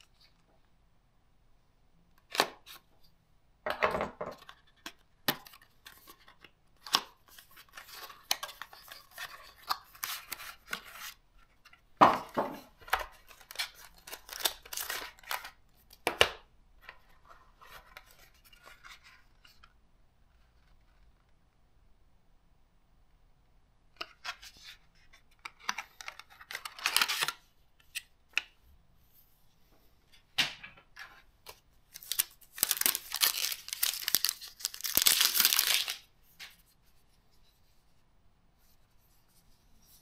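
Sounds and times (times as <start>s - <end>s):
cardboard packaging rustling: 12.2s - 15.6s, 32.0s - 36.1s.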